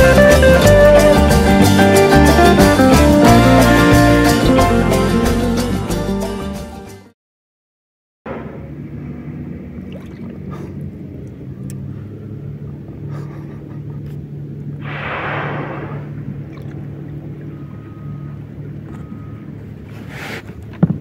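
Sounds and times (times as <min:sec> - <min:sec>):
low motor hum: 0:08.3 - 0:21.0
whale blow whoosh: 0:14.8 - 0:16.9.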